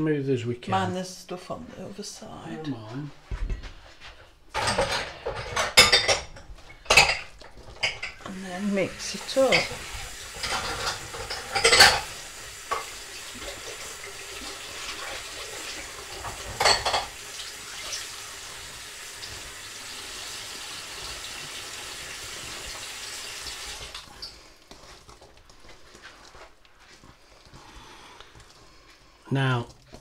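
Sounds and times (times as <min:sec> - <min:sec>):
whisk squelching in batter: 0:24.0 - 0:30.0.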